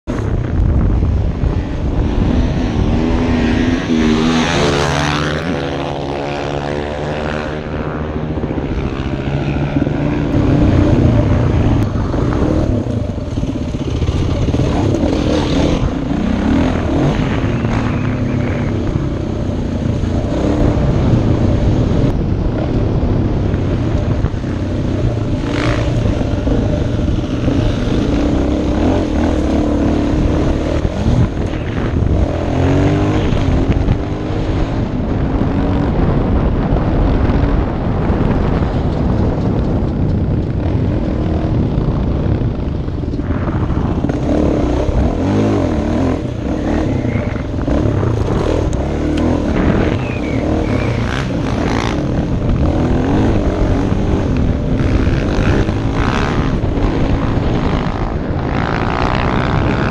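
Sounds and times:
wind rushing over microphone: 0.0s - 59.9s
dirt bike engine revving: 1.4s - 36.2s, 43.4s - 59.9s.

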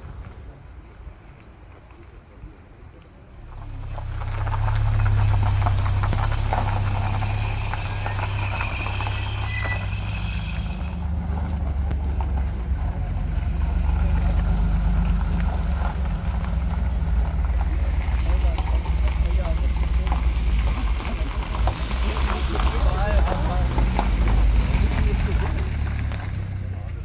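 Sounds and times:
car engine rumble: 3.2s - 27.0s
tyres crunching on gravel: 3.3s - 27.0s.

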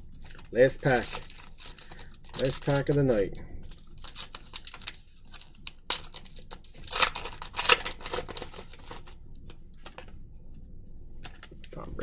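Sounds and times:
foil wrapper tearing and crinkling: 0.1s - 9.2s.

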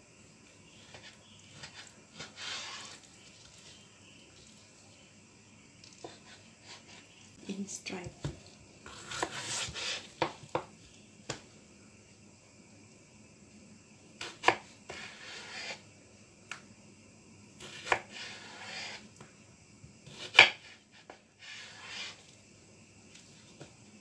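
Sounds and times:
knife rasping slicing strokes: 8.9s - 10.1s.

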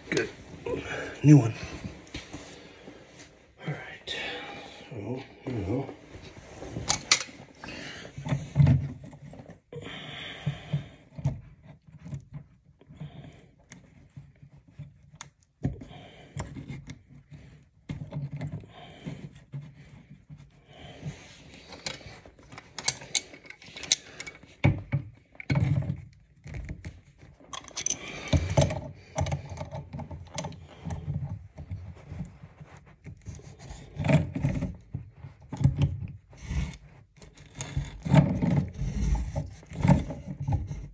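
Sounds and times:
metal clinks and rattles: 27.5s - 29.7s.

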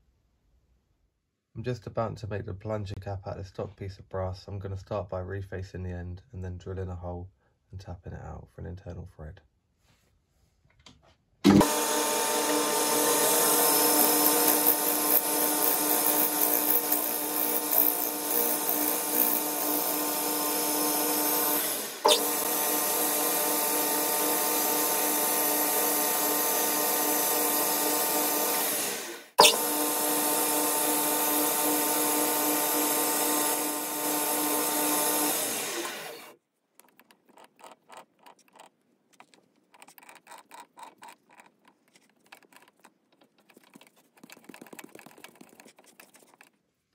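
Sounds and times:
lathe running with whining drive: 11.6s - 36.3s.

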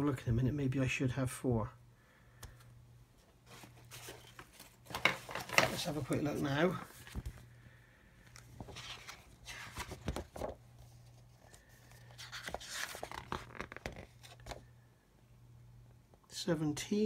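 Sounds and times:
paper pages rustling: 3.2s - 7.5s, 8.2s - 14.7s.

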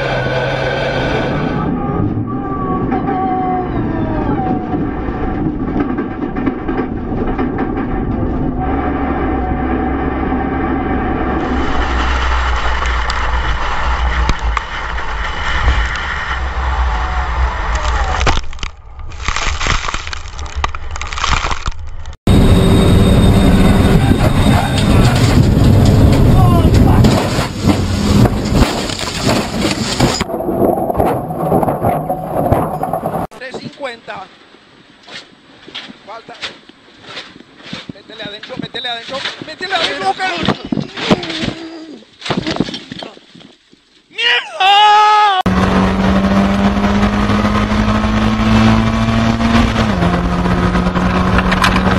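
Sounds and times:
race car engine: 0.0s - 18.3s, 22.3s - 33.4s, 45.4s - 51.9s
low rumble: 1.4s - 33.4s
rapid knocking and rattling clatter: 5.3s - 8.4s
race car crashing: 24.0s - 33.4s.

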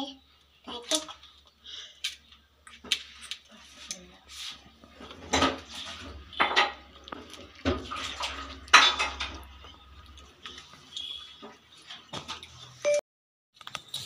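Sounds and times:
steel bowl clanking: 5.2s - 9.8s.

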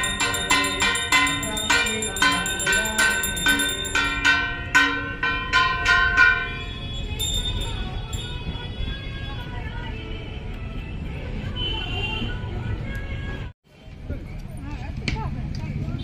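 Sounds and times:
bells chiming: 0.0s - 8.8s.

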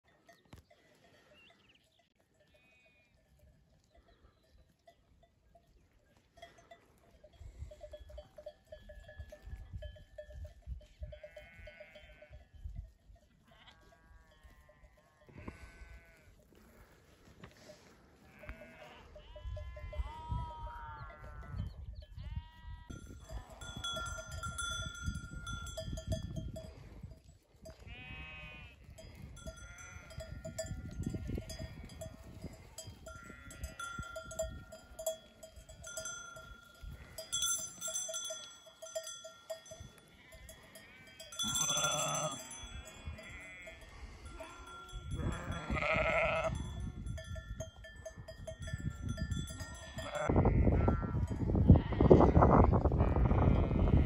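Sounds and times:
sheep bells clinking: 0.0s - 52.0s
sheep bleating: 11.1s - 12.4s, 13.4s - 16.8s, 18.2s - 24.1s, 27.8s - 34.2s, 39.9s - 46.6s, 49.7s - 54.0s
wind rumble on microphone: 12.2s - 13.2s, 19.2s - 35.0s, 42.7s - 54.0s.

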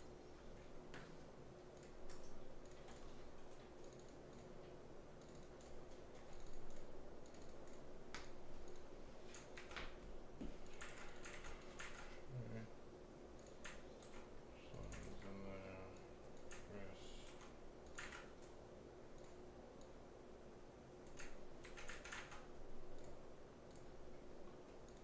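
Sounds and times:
typing on a keyboard: 1.8s - 4.5s, 5.2s - 10.0s, 10.6s - 12.2s, 13.4s - 15.3s, 16.4s - 18.6s, 21.0s - 23.9s, 24.8s - 25.0s.

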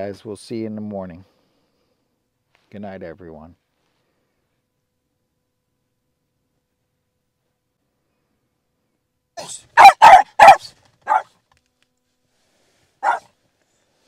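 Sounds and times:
small dog barking: 9.4s - 11.3s, 13.0s - 13.3s.

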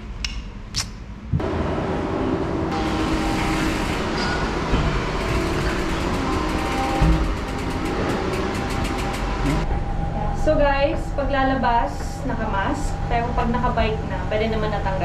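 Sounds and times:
bike wheels rumbling over tiles: 3.1s - 9.7s
freewheel ticking: 5.2s - 9.7s.

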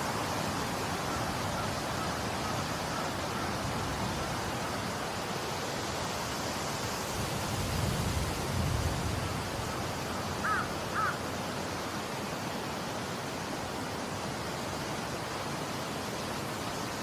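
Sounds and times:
wind: 0.0s - 17.0s
bird calls: 10.0s - 11.3s.

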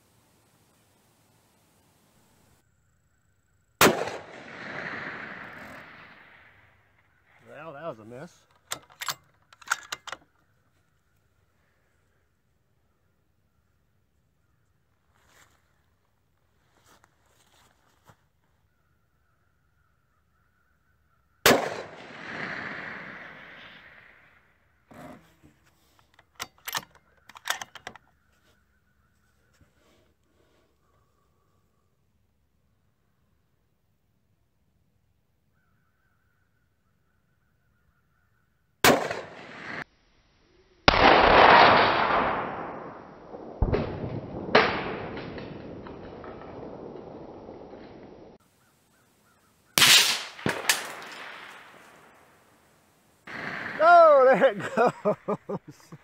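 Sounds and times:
rifle shot: 3.8s - 6.7s, 21.4s - 24.3s, 38.8s - 39.8s, 40.9s - 48.4s, 49.8s - 52.3s, 53.3s - 54.2s.

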